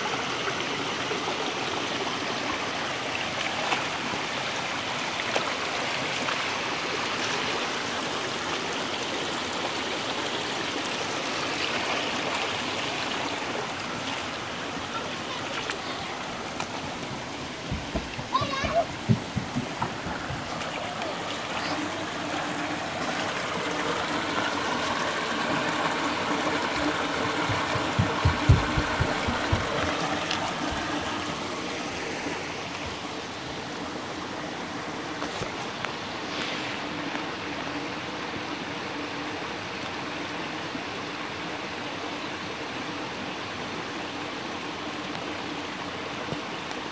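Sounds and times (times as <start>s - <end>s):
stream running over rocks: 0.0s - 46.9s
low thumps: 17.6s - 20.5s, 27.4s - 30.0s.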